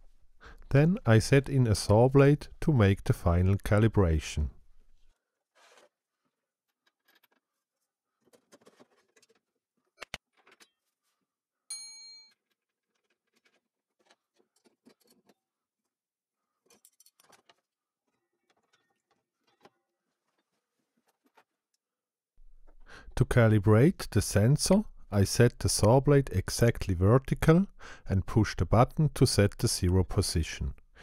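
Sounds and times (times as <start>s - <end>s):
metal parts clicking and knocking: 6.8s - 7.5s, 16.6s - 19.8s.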